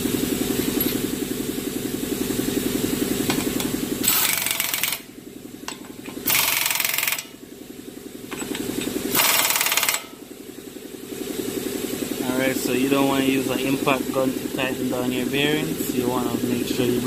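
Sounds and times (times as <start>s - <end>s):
low steady pulsing: 0.0s - 17.0s
impact gun bursts: 4.0s - 5.2s, 6.2s - 7.4s, 9.1s - 10.2s.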